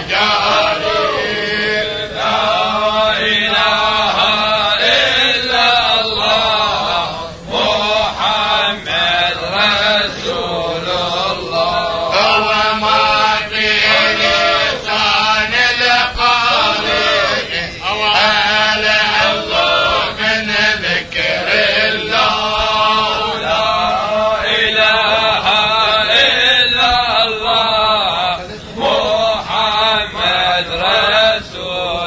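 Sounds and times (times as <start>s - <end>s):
men chanting a hymn: 0.0s - 32.0s.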